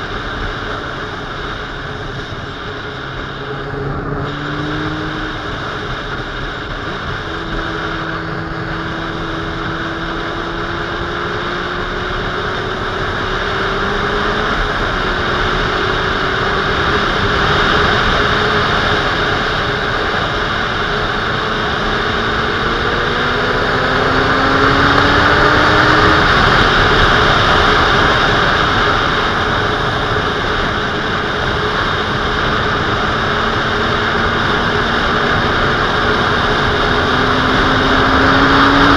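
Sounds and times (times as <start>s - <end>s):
motorcycle engine running: 0.0s - 38.9s
wind rush: 0.0s - 38.9s.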